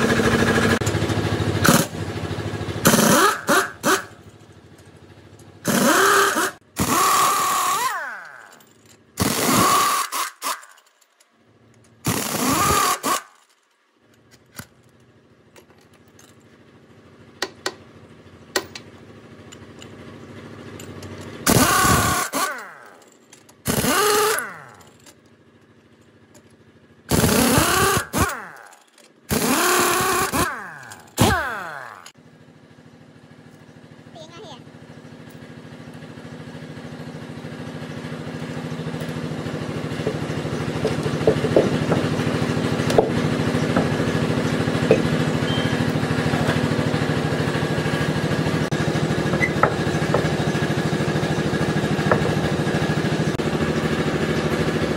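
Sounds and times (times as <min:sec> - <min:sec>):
impact wrench rattling: 0:20.7 - 0:26.6, 0:27.2 - 0:32.2, 0:38.4 - 0:45.3
impact wrench whine spinning down: 0:20.8 - 0:25.1, 0:27.1 - 0:32.2, 0:38.0 - 0:54.0.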